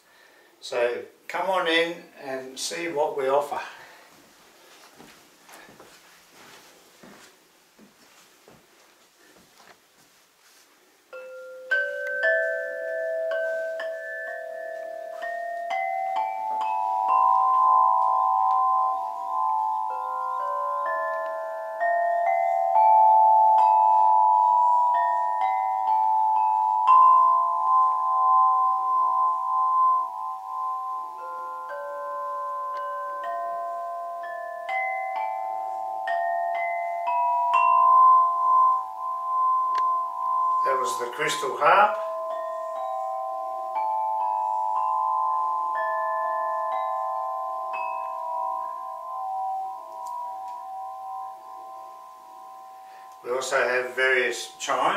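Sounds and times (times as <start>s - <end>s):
crystal harp notes ringing: 11.1s - 54.9s.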